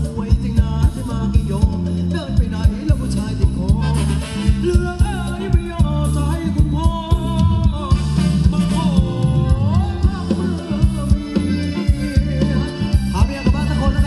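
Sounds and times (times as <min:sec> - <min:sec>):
heavy bass: 0:00.0 - 0:14.0
steady drum beat: 0:00.0 - 0:14.0.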